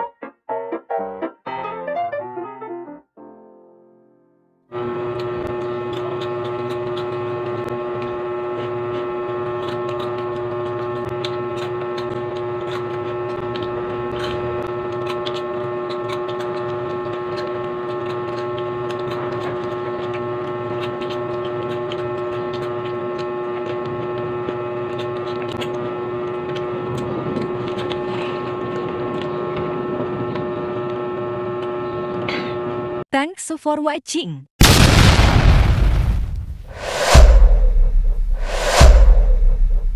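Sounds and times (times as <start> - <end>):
loud machine hum: 4.7 - 33.0, 36.7 - 39.9.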